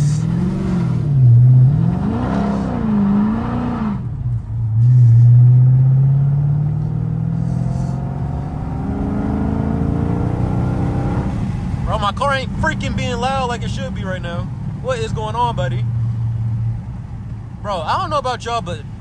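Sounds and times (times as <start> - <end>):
car engine revving and droning: 0.0 - 17.6.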